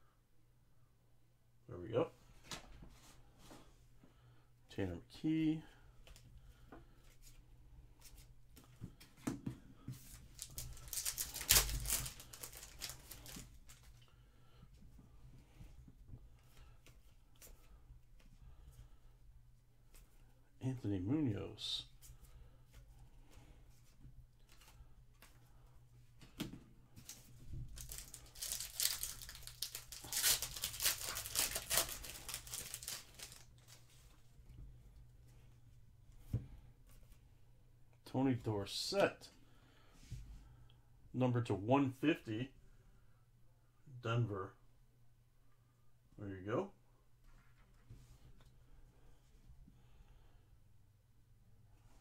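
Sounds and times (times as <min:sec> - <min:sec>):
foil wrapper tearing and crinkling: 0:10.4 - 0:13.8, 0:27.8 - 0:33.8.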